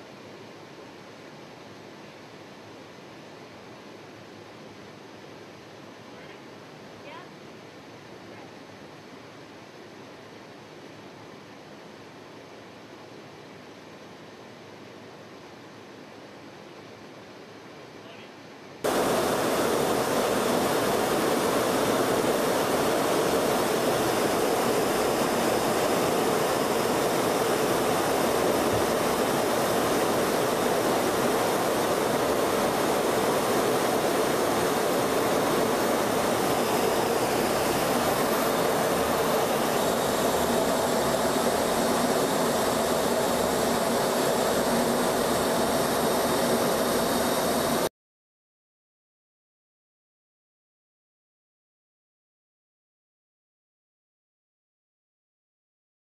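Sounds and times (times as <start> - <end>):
jet aircraft roar: 18.9 - 47.9.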